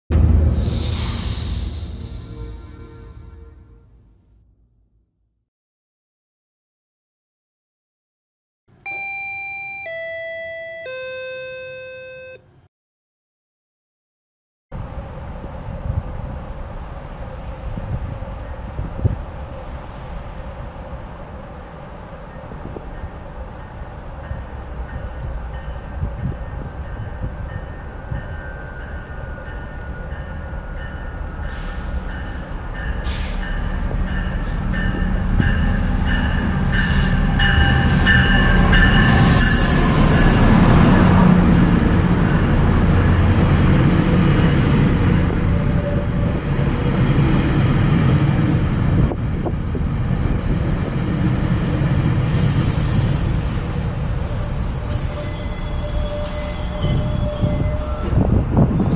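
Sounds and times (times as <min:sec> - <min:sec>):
coaches rumbling on rails: 0:14.8 - 0:58.9
locomotive engine and wheels: 0:14.8 - 0:58.9
thin high squeal: 0:55.0 - 0:58.1.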